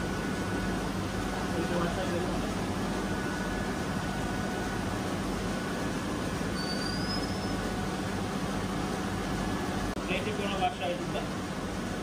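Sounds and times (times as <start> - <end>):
machinery humming: 0.0 - 12.0
short rising whistle: 6.5 - 7.7.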